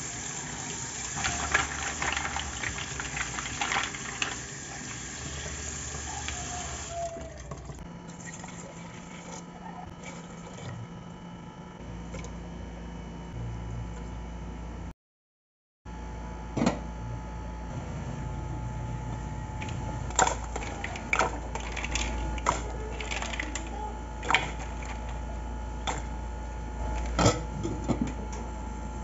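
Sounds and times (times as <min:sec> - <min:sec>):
mussel shells clattering in pot: 0:00.8 - 0:06.9, 0:19.6 - 0:26.2, 0:26.8 - 0:28.2
steady hum: 0:15.9 - 0:29.0.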